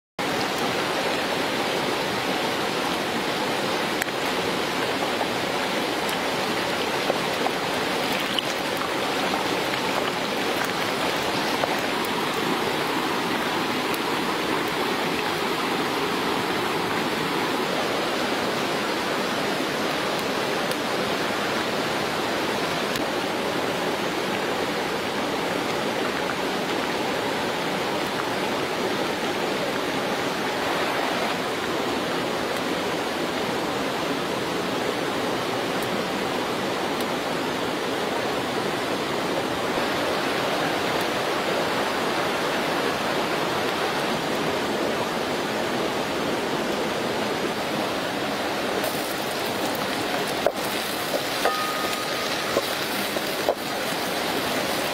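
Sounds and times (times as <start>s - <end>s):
frogs sizzling in hot oil: 48.8s - 54.9s.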